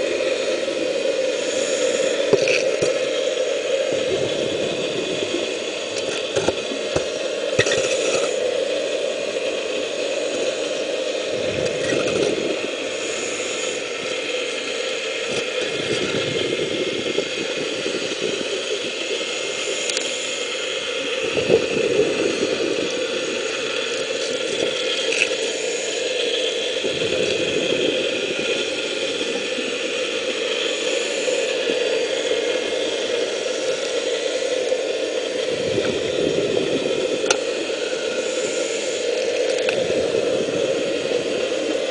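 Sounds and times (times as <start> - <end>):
deep rumble: 0.0 - 8.6, 11.2 - 14.2, 15.3 - 19.3, 20.8 - 26.0, 26.6 - 33.2
underwater dredge suction rushing: 0.0 - 41.9.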